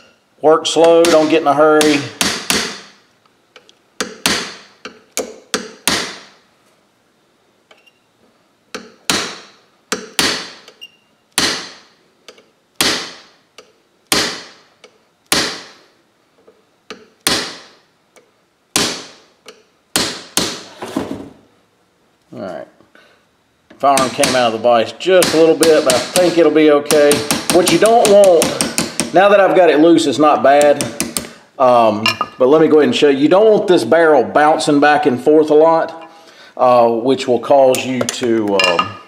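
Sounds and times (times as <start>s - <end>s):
hammer tapping metal punch: 0.0s - 3.0s, 3.6s - 6.3s, 8.7s - 15.8s, 23.7s - 24.5s, 25.2s - 29.2s, 30.6s - 31.3s.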